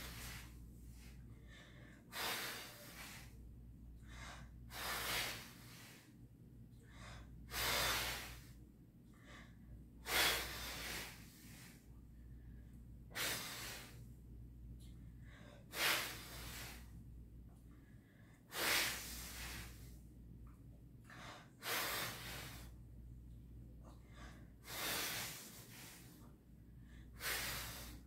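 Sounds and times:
woman breathing hard: 0.0s - 3.4s, 4.0s - 14.1s, 14.8s - 17.0s, 17.7s - 20.0s, 21.0s - 22.9s, 23.8s - 28.0s
hissing exhalation: 4.7s - 5.9s, 18.5s - 19.8s.

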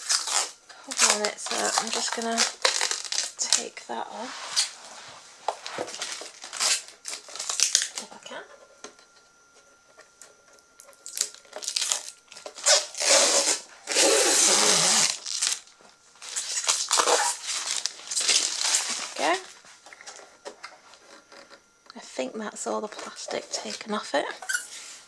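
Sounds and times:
plastic film crinkling: 0.0s - 8.3s, 10.8s - 20.2s.

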